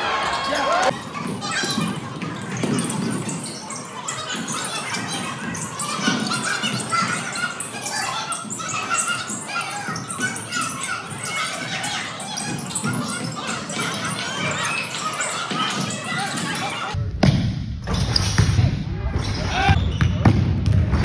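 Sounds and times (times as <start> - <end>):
players calling out: 0.0 - 2.0
sneakers squeaking on hardwood: 0.4 - 17.0.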